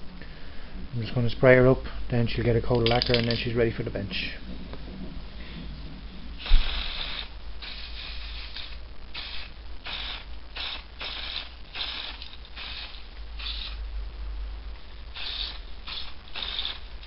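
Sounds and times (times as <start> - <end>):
spray paint can hissing: 6.4 - 13.8, 15.1 - 17.0.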